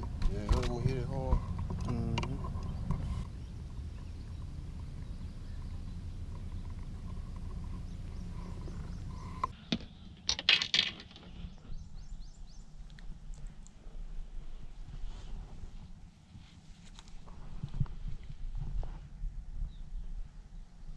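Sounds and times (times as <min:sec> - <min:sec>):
low steady rumble: 0:00.0 - 0:09.6.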